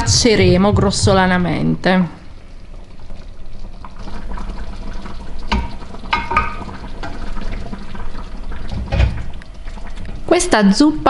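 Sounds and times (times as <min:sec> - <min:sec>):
broth dripping and splashing: 0:02.2 - 0:11.0.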